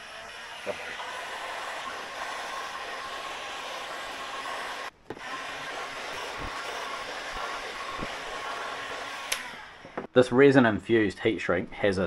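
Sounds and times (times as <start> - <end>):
heat gun blowing with fan whine: 0.0 - 10.1.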